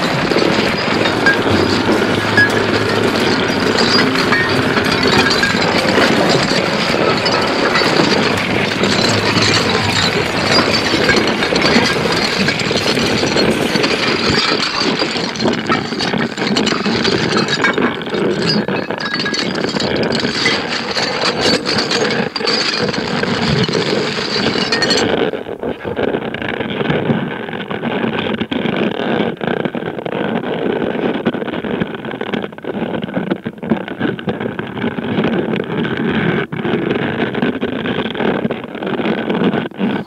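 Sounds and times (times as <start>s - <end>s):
harsh noise wash with clicks: 0.0s - 21.0s.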